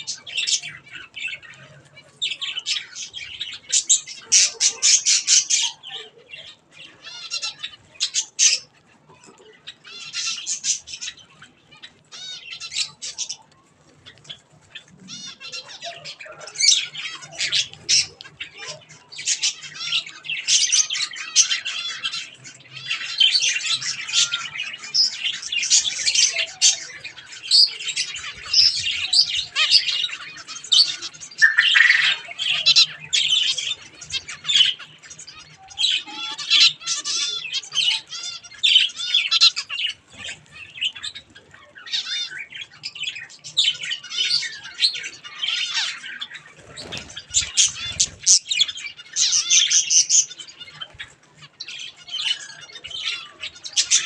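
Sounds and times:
finches chirping: 0:19.2 - 0:51.0.

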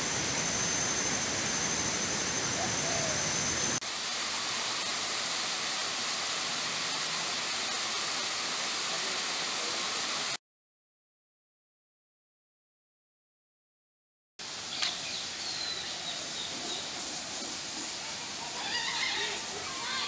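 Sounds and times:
thin high whine: 0:00.0 - 0:03.8
waterfall rushing: 0:00.0 - 0:10.4, 0:14.4 - 0:20.0.

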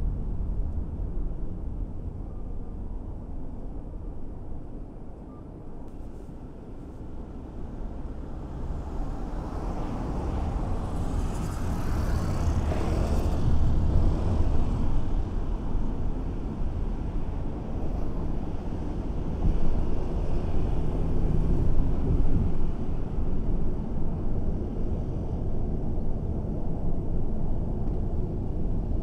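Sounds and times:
car driving on street: 0:05.8 - 0:29.0
road traffic rumble: 0:05.9 - 0:29.0.

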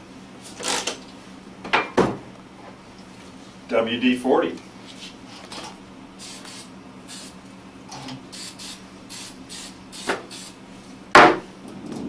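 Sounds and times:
aerosol can spraying: 0:06.2 - 0:07.4, 0:08.3 - 0:10.6.

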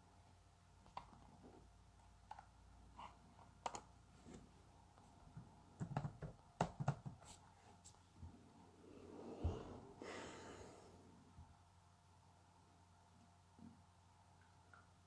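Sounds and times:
hands clicking and knocking on table: 0:05.8 - 0:07.3.

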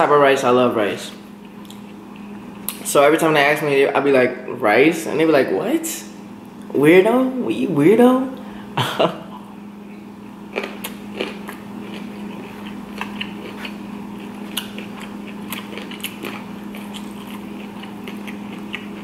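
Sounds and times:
man chewing food: 0:01.3 - 0:02.8, 0:09.3 - 0:19.0.

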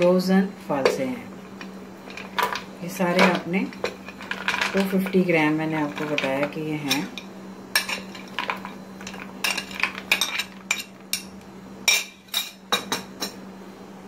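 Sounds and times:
frozen berries clattering into blender: 0:02.1 - 0:05.2.

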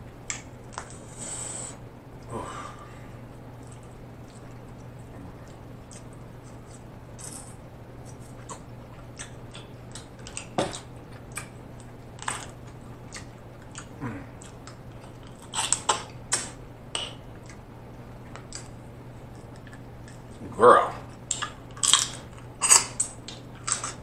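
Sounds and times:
faint low hum: 0:00.0 - 0:24.0
eating sounds: 0:03.5 - 0:24.0
crab shells cracking: 0:12.2 - 0:17.6, 0:21.2 - 0:24.0.

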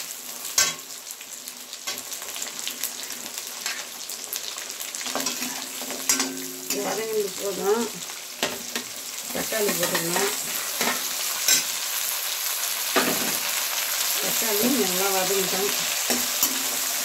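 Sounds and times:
onions sizzling in oil: 0:00.0 - 0:17.0
spatula scraping a pan: 0:05.0 - 0:07.1, 0:08.4 - 0:11.8.

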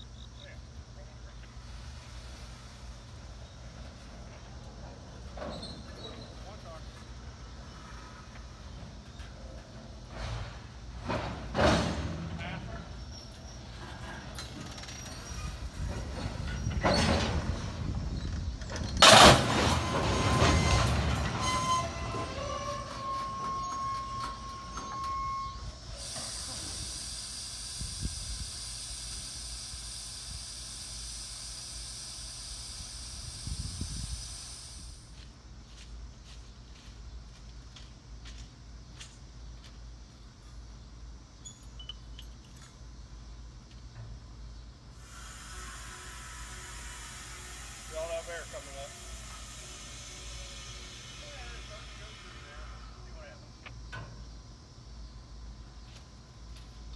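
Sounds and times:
steady hiss: 0:00.0 - 0:18.6, 0:22.7 - 0:36.7, 0:41.2 - 0:56.9
train wheels rumbling on rail: 0:01.5 - 0:27.1
faint brake squeal: 0:05.3 - 0:07.0, 0:12.4 - 0:18.5, 0:19.5 - 0:27.4, 0:41.4 - 0:42.0, 0:45.0 - 0:53.4
loud sharp burst of noise: 0:19.0 - 0:21.8, 0:25.9 - 0:35.1, 0:45.0 - 0:53.1
faint metallic clinks: 0:41.4 - 0:42.8.

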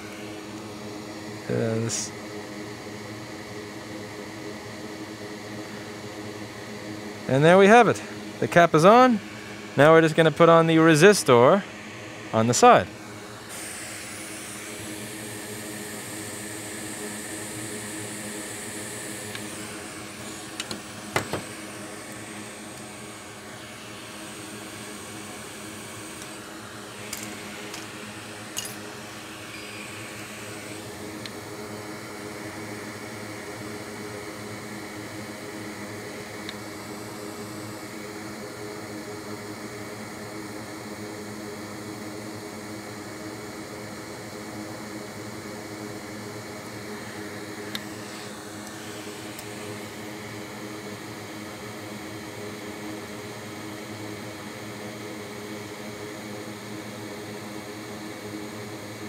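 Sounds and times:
fan humming: 0:00.0 - 0:38.8, 0:45.2 - 0:52.4.

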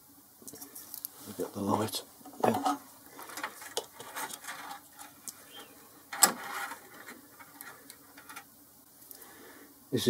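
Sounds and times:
hands handling objects: 0:02.3 - 0:08.5.

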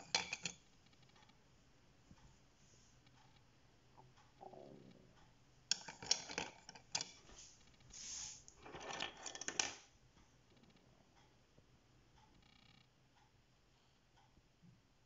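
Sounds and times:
wooden pencils clattering: 0:00.0 - 0:00.6, 0:05.7 - 0:09.9.

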